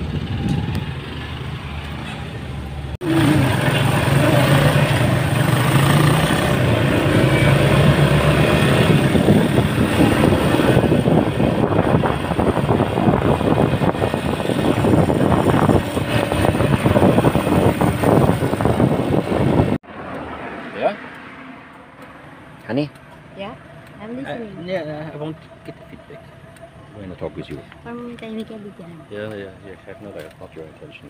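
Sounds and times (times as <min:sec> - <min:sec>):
motorcycle engine running: 0:03.0 - 0:19.8
wind buffeting on microphone: 0:06.5 - 0:19.8.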